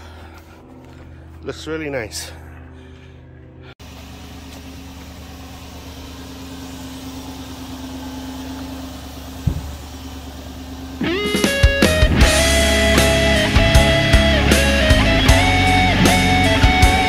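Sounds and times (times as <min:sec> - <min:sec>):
engine idling: 0:00.0 - 0:17.0
low thump: 0:09.4 - 0:09.9.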